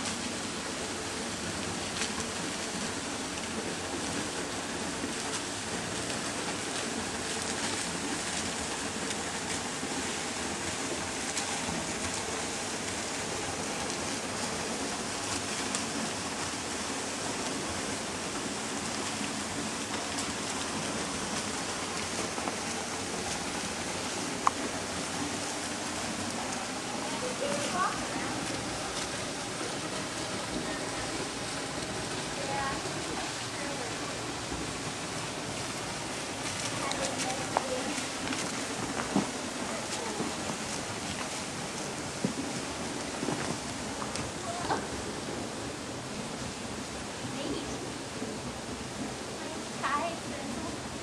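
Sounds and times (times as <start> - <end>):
waterfall rushing and splashing: 0.0 - 51.0.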